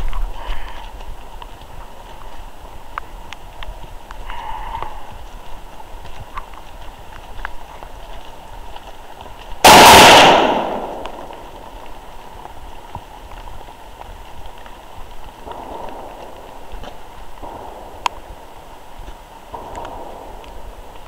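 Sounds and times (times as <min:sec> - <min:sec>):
loud sharp bang: 0:09.6 - 0:11.0.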